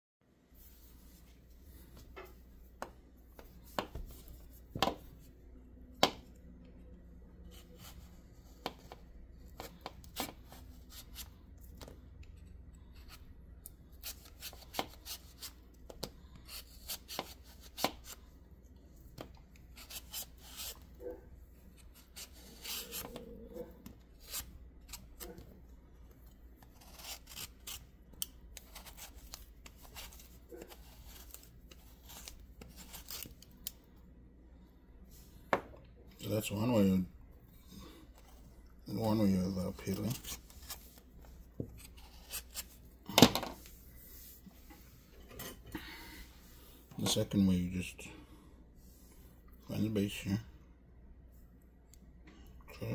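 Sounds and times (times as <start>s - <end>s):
vegetable peeler scraping skin: 14.0s - 15.6s, 16.4s - 18.2s, 19.7s - 20.8s, 21.8s - 23.3s, 24.1s - 25.4s, 26.6s - 33.5s, 41.8s - 42.8s.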